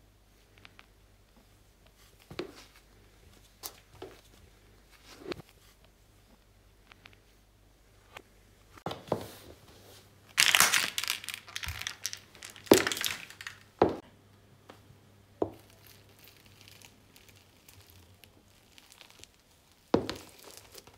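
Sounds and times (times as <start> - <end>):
shoe crushing slime crackling: 10.4 - 14.0, 15.5 - 20.9.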